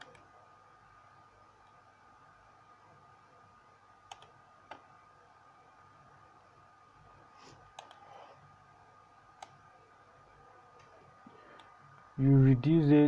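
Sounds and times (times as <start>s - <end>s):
computer mouse clicks: 0.0s - 0.3s, 4.1s - 4.8s, 7.7s - 8.2s, 9.4s - 9.6s.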